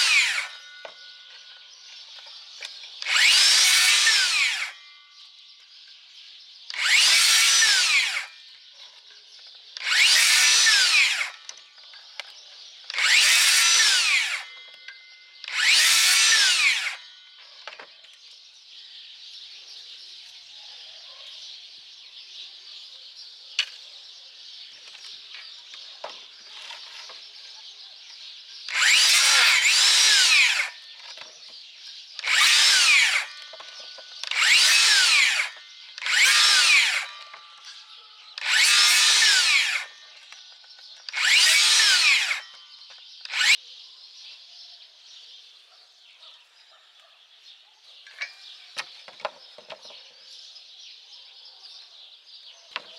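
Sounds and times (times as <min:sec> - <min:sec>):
saw blade braking to stop: 0:00.0 - 0:00.8, 0:03.0 - 0:04.8, 0:06.7 - 0:08.4, 0:09.8 - 0:11.5, 0:12.9 - 0:14.6, 0:15.4 - 0:17.1, 0:28.7 - 0:30.9, 0:32.2 - 0:37.8, 0:38.4 - 0:40.0, 0:41.1 - 0:42.6, 0:43.3 - 0:43.6
circular saw cutting branches: 0:00.0 - 0:05.2, 0:06.7 - 0:18.0, 0:24.8 - 0:43.6.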